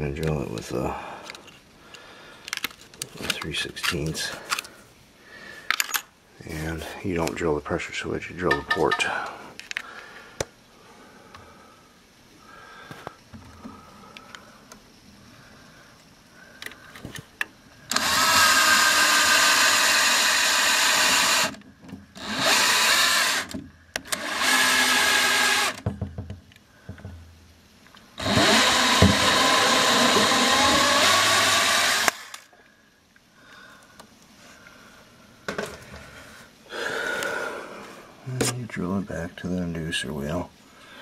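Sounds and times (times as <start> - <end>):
power drill boring: 17.9 - 21.6, 22.2 - 25.8, 28.2 - 32.5.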